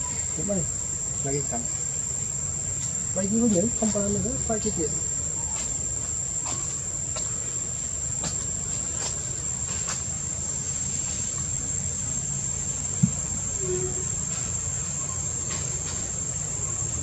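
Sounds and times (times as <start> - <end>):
high-pitched insect drone: 0.0 - 17.0
short thump: 13.0 - 13.3.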